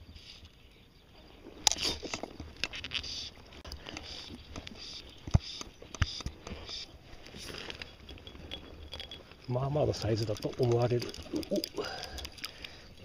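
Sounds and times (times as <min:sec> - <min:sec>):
fishing gear knocks and clicks: 0:01.6 - 0:13.0
close clothing rustling: 0:06.4 - 0:13.0.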